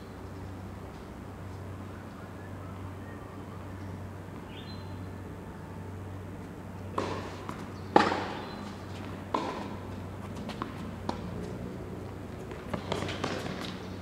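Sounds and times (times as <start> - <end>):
tennis ball hit by rackets: 6.9 - 11.4, 12.5 - 13.8
tennis ball bouncing: 6.9 - 11.6, 12.3 - 13.8.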